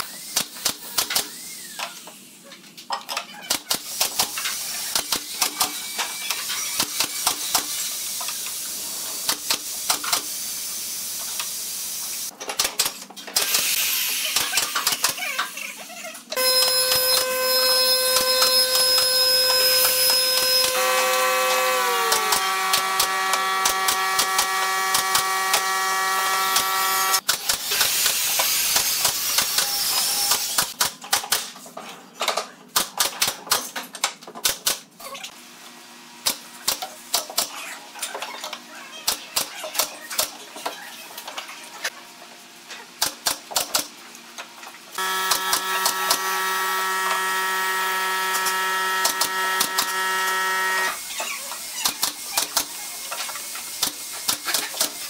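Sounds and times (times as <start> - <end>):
steady multi-tone hum: 16.4 - 27.2, 45.0 - 51.0.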